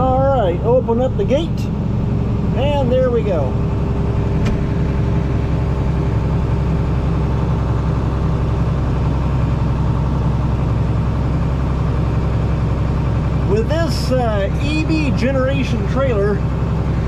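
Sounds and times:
tractor engine running: 0.0 - 17.0.

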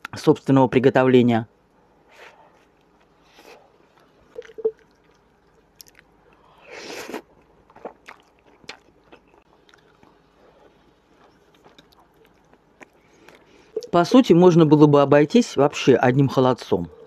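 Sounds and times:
wet chewing and lip smacks: 3.9 - 13.9.

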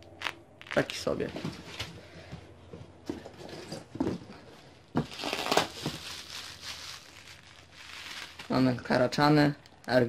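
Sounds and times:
plastic packaging crinkling: 0.1 - 1.1, 5.0 - 9.1.

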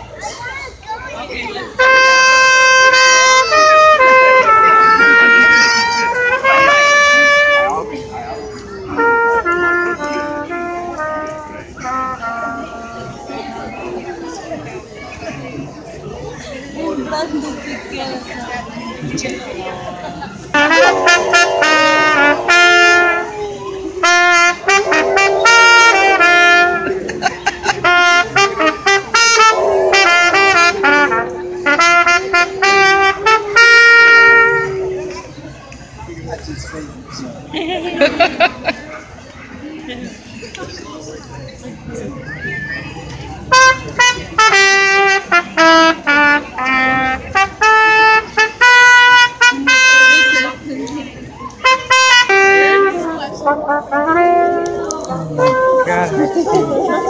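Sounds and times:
trumpet playing carol melody: 1.8 - 14.0, 20.5 - 35.2, 43.4 - 50.7, 51.6 - 57.0
dog howling: 20.6 - 35.3.

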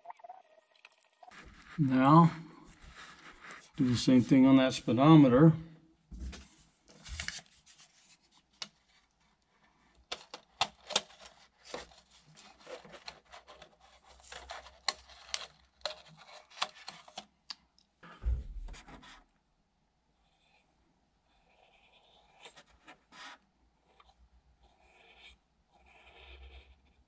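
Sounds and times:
paper scratching against plastic: 1.3 - 4.0, 10.2 - 17.2, 21.6 - 27.0
low thump: 18.2 - 19.0.

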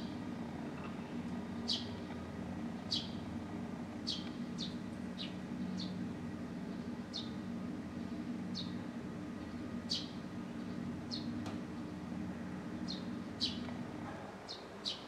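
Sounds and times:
steady low hum: 0.0 - 15.0
sparrow chirping: 1.6 - 2.0, 2.8 - 3.2, 4.0 - 6.0, 6.7 - 7.4, 8.0 - 8.8, 9.4 - 11.9, 12.8 - 13.7.

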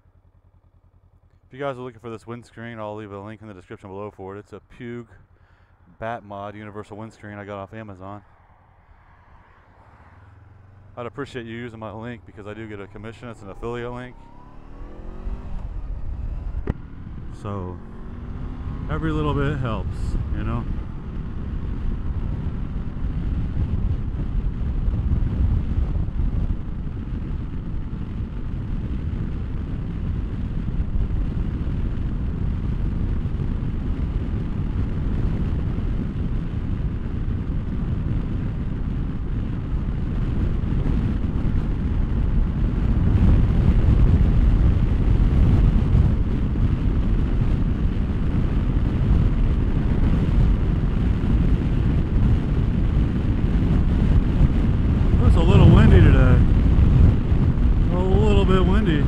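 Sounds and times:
motorcycle engine running: 0.0 - 1.5, 9.7 - 59.0
road noise: 0.0 - 1.5, 5.0 - 59.0
wind buffeting microphone: 8.9 - 59.0.

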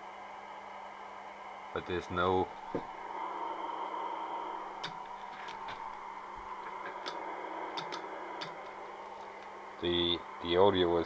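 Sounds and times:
faint steady tone: 0.0 - 11.0
radio band noise hiss: 1.6 - 11.0
sharp clicks: 4.8 - 6.0, 6.6 - 8.8.

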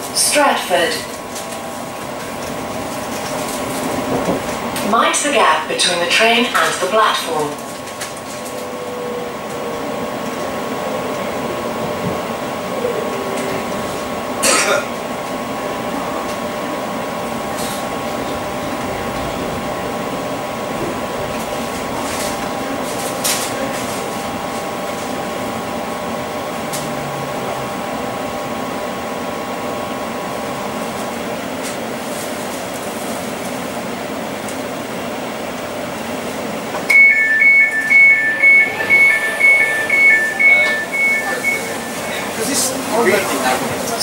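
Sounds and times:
train carriage hum: 0.0 - 44.0
faint high tones: 36.9 - 42.5.

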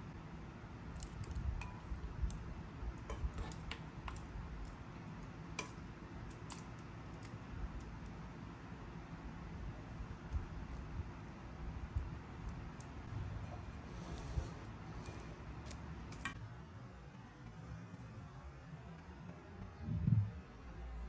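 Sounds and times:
low steady rumble: 0.0 - 16.4, 19.2 - 21.0.

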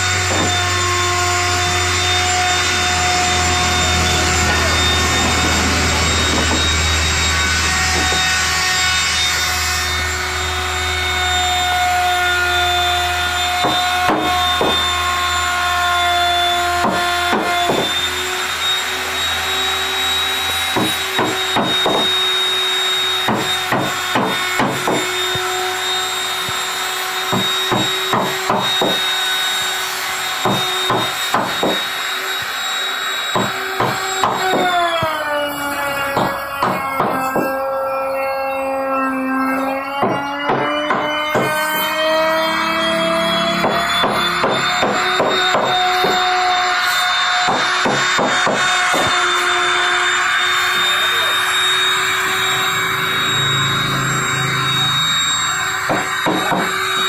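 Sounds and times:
woodworking power tool whining: 0.0 - 57.0
sharp knocks: 0.2 - 0.7, 7.4 - 8.4, 13.5 - 14.9, 20.4 - 22.2, 23.2 - 25.5, 27.3 - 29.1, 30.4 - 31.9, 36.1 - 37.6, 39.9 - 41.6, 43.3 - 46.3, 47.4 - 49.2, 55.9 - 57.0.

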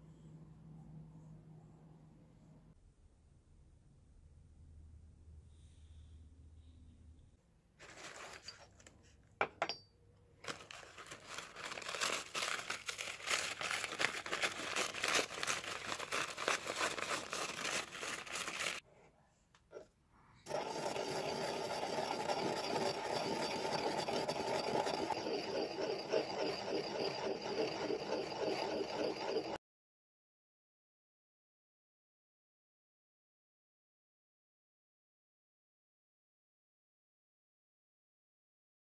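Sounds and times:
paper towel crinkling and tearing: 10.4 - 18.8
pestle grinding in ceramic mortar: 20.5 - 29.6.

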